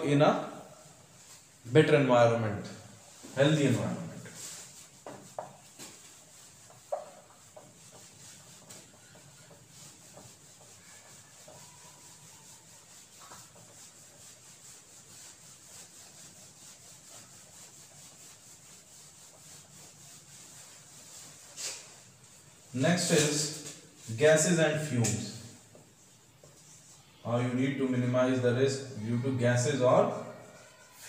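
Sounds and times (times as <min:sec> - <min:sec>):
eraser rubbing on whiteboard: 0:03.0 - 0:27.2.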